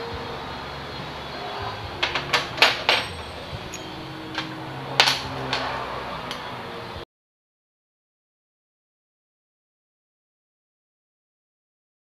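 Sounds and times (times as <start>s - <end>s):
metal tools clinking: 2.0s - 5.8s.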